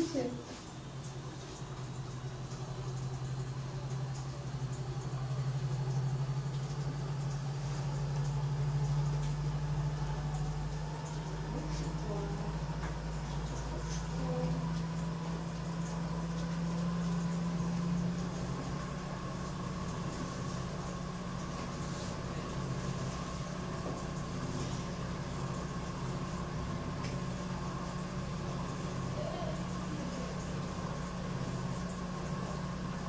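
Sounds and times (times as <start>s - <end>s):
treadmill motor hum: 0.0s - 33.0s.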